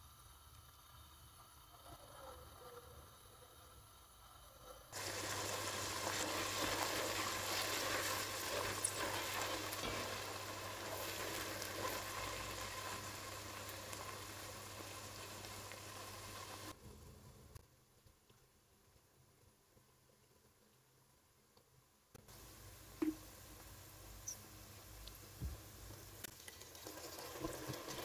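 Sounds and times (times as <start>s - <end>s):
peppers sizzling in oil: 3.9s - 16.8s, 22.3s - 28.0s
spatula stirring in pot: 5.0s - 16.7s.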